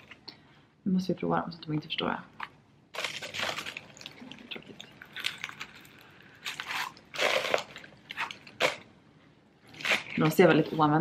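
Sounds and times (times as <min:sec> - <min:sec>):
shoe handling rubbing and crinkling: 0:02.9 - 0:08.8.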